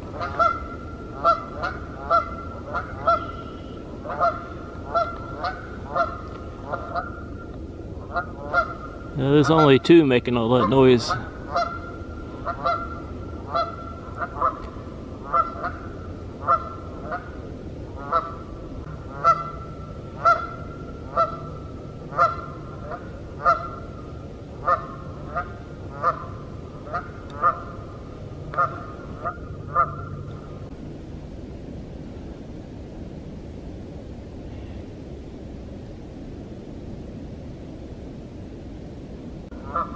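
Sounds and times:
geese honking: 0.1 - 7.2, 8.0 - 9.9, 10.5 - 17.4, 18.0 - 24.0, 24.6 - 27.8, 28.5 - 30.2, 39.6 - 39.9.

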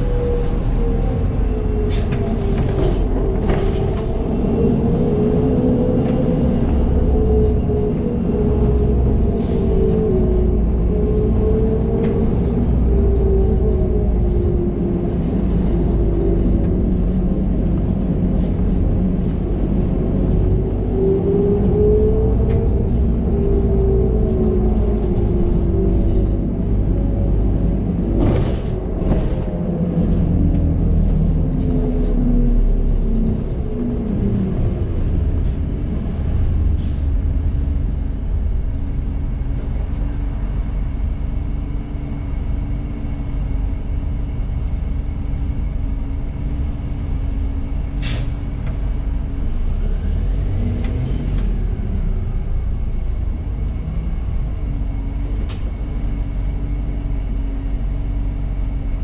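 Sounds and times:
bus engine idling: 22.3 - 59.0
air brake hiss: 48.0 - 48.4.

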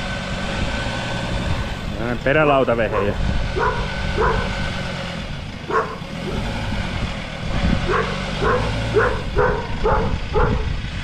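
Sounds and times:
tow truck engine running: 0.0 - 11.0
dog barking: 2.9 - 4.6, 5.7 - 6.4, 7.9 - 10.7.

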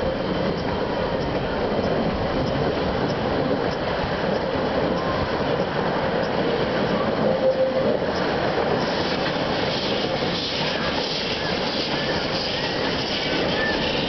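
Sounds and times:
steam locomotive working: 0.0 - 14.0
train wheels rumbling on rails: 0.0 - 14.0.

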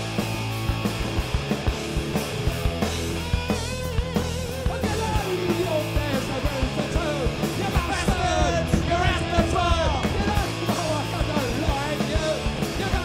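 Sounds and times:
bass: 0.0 - 13.0
drums: 0.0 - 13.0
electric guitar: 0.0 - 13.0
lead vocal singing: 4.6 - 13.0.

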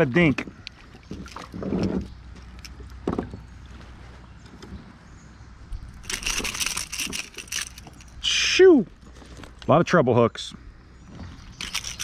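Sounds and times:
water splashing: 0.0 - 2.8
rapid clicking and rattling: 6.0 - 8.0.

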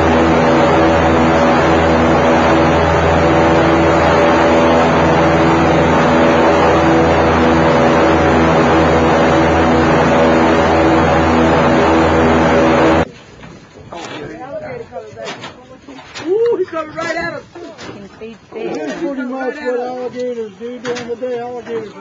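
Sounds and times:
airboat engine and propeller drone: 0.0 - 16.2.

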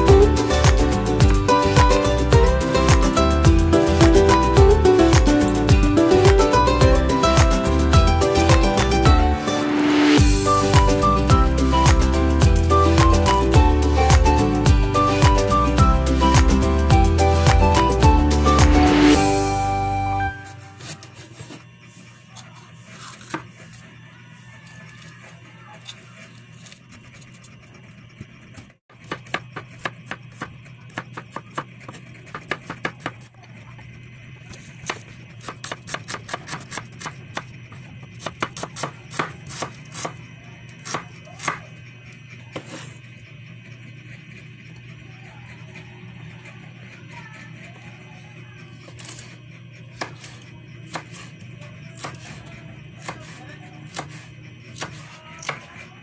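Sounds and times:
knife chopping on wooden board: 20.6 - 21.6, 22.9 - 23.6, 29.0 - 33.3, 34.5 - 37.5, 38.2 - 40.2, 40.8 - 41.7, 50.0 - 51.3, 52.0 - 52.4, 53.0 - 55.7.

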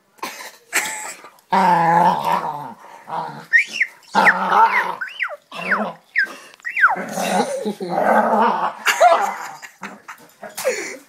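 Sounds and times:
dog growling: 1.5 - 6.2, 6.8 - 9.7
dog whining: 3.3 - 7.6.

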